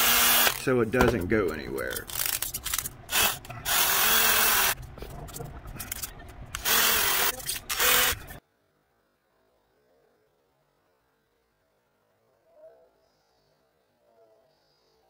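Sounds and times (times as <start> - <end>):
power drill drilling: 0.0 - 0.6, 3.1 - 4.8, 6.6 - 8.4.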